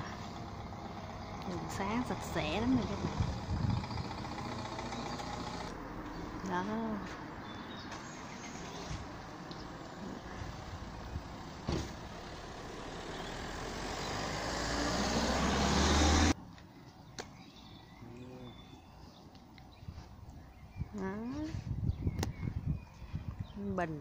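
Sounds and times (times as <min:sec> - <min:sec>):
vehicle traffic rushing: 0:00.0 - 0:16.4.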